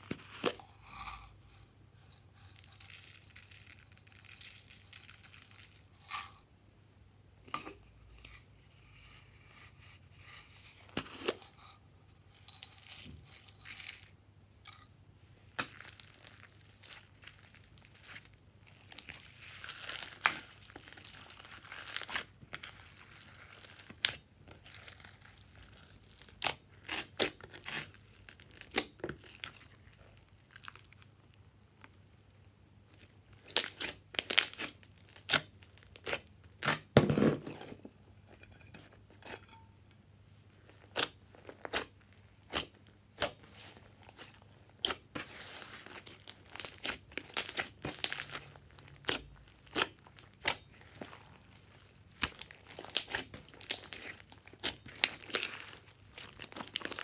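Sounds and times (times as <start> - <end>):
slime being kneaded by hand: 15.5 - 31.1, 32.9 - 37.9, 40.6 - 57.0.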